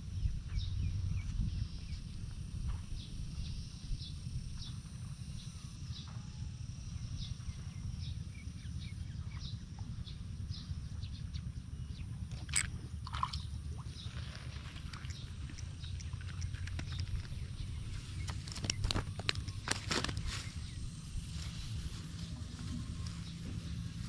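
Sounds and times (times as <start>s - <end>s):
low rumble: 6.6s - 24.0s.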